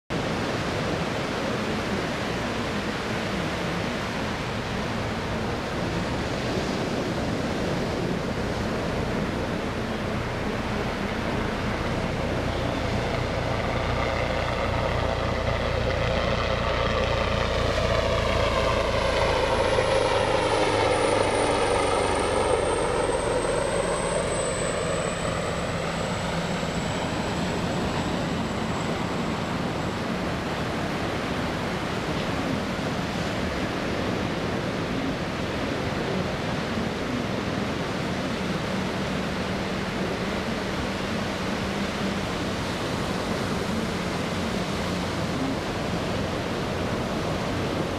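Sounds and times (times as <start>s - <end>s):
high turbine whine: 0.1s - 47.9s
helicopter flying past: 0.2s - 47.9s.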